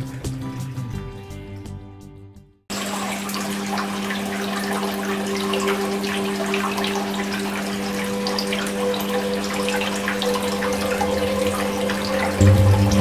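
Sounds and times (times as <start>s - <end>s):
water trickling down rocks: 2.7s - 13.0s
steady low hum: 10.4s - 13.0s.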